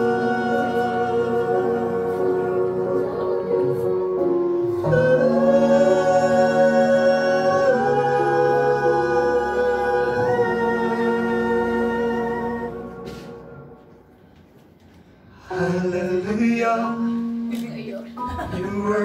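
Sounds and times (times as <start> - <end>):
sustained accompanying chords: 0.0 - 14.0
two men singing: 4.8 - 12.8.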